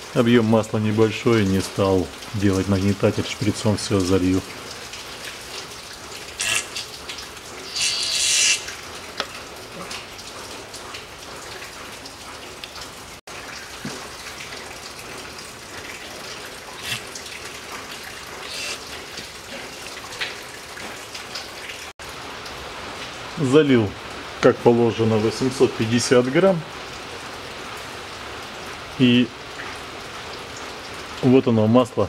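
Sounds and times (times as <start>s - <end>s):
hissing spurt of oil: 7.6s - 8.7s, 16.8s - 17.1s, 18.4s - 18.8s.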